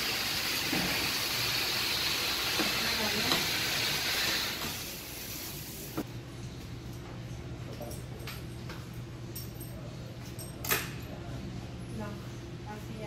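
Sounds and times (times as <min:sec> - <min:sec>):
water spraying from hose: 0:00.0 - 0:06.0.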